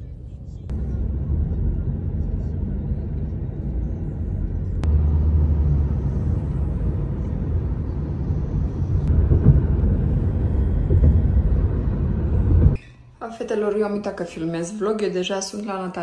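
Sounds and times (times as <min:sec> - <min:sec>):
car driving rumble: 0:00.0 - 0:12.8.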